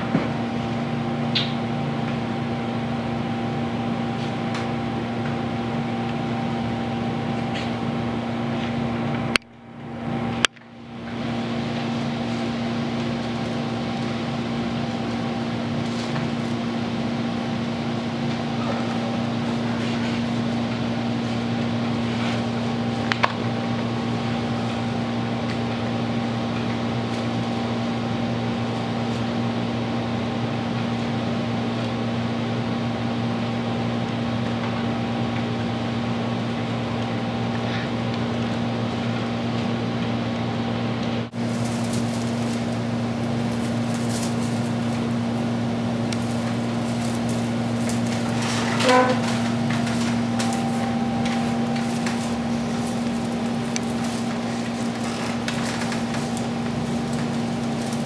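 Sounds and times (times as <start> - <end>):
mechanical fan hum: 0.0 - 58.0.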